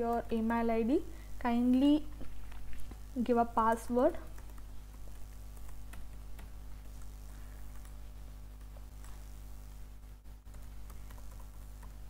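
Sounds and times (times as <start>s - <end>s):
low electrical hum: 0.0s - 12.0s
computer keyboard clicks: 4.3s - 7.1s.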